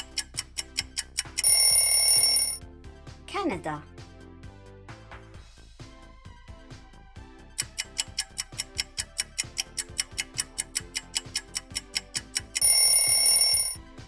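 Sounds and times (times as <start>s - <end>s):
rapid clock ticking: 0.0s - 2.6s, 7.6s - 13.8s
quiet background music: 0.0s - 14.0s.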